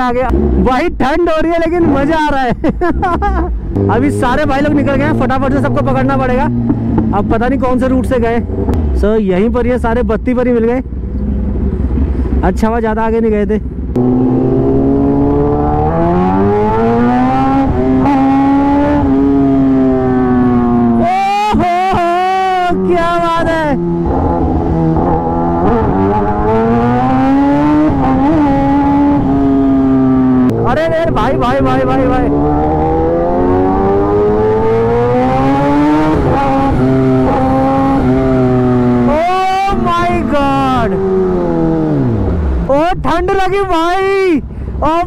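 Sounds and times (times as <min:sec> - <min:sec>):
motorcycle engine revving: 0:00.0 - 0:02.3, 0:03.0 - 0:10.1, 0:13.7 - 0:42.9.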